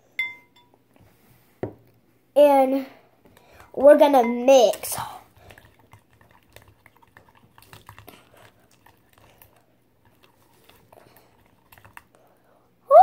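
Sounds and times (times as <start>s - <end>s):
spoon stirring slime in bowl: 3.2s - 12.3s.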